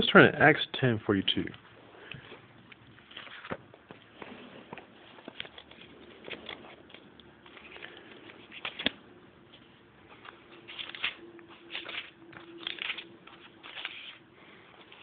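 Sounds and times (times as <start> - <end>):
paper pages rustling: 2.2 - 15.0.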